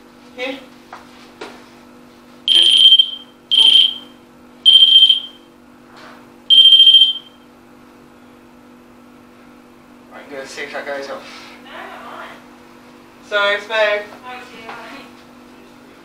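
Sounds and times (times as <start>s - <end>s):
high-pitched alarm beeps: 2.5s - 5.4s, 6.5s - 7.4s.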